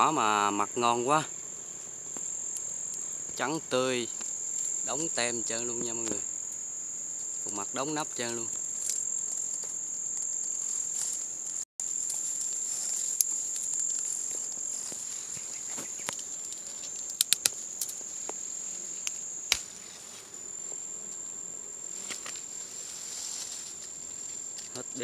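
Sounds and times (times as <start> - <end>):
high-pitched insect trill: 0.0 - 25.0
sharp clicks: 17.0 - 18.0.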